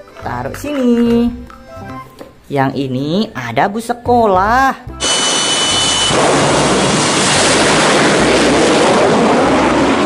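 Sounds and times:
high-pitched whine: 0:05.0 - 0:10.0
jet engine roaring: 0:05.0 - 0:10.0.

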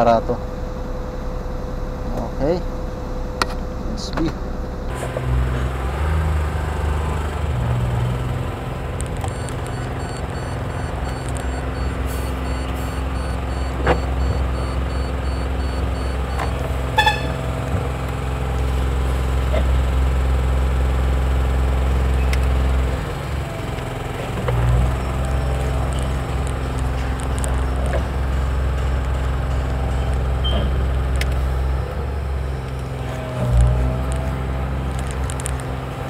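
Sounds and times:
truck engine rumble: 0:00.0 - 0:36.0
high beeping: 0:08.8 - 0:17.5
short beep: 0:09.3 - 0:17.4.

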